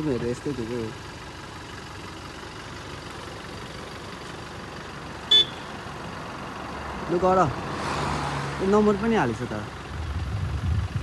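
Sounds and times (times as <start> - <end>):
car engine running low: 0.0 - 11.0
car horn beep: 5.3 - 5.7.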